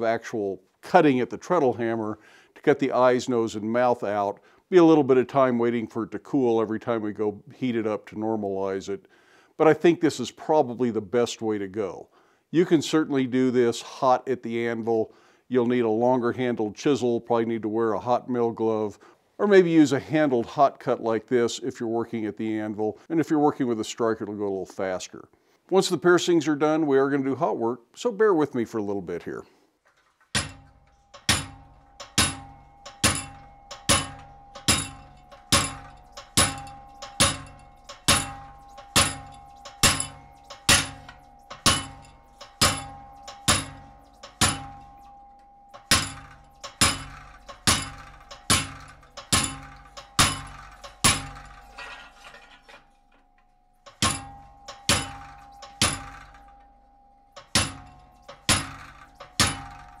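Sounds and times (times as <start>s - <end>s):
hammer striking chisel on steel: 30.3s - 60.0s
steady ringing tone: 30.4s - 60.0s.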